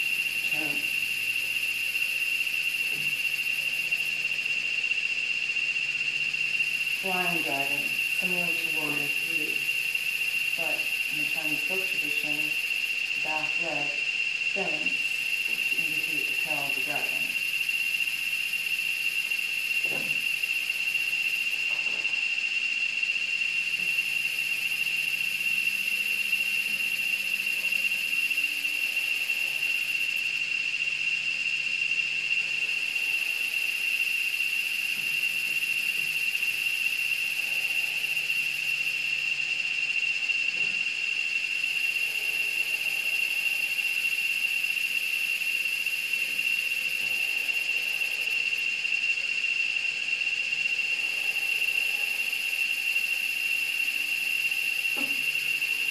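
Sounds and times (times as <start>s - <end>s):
high-pitched whine: 0.0s - 55.9s
hiss: 0.0s - 55.9s.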